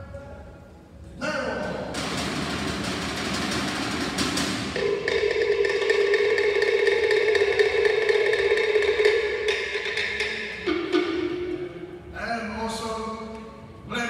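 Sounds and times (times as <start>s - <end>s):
wooden percussion rapid roll: 1.9s - 11.7s.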